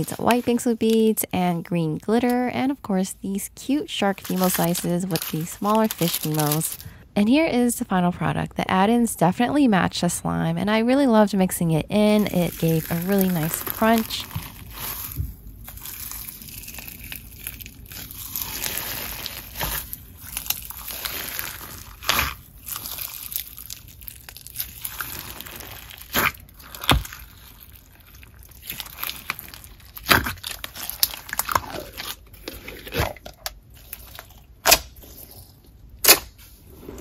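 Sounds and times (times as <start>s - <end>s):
crunchy slime squelching: 3.6s - 7.0s, 12.0s - 37.0s.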